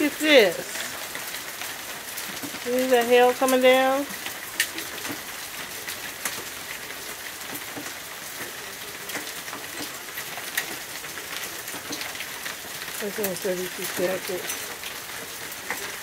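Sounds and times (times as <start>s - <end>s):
hailstones ticking on ground: 0.0s - 16.0s
rain hissing: 0.0s - 16.0s.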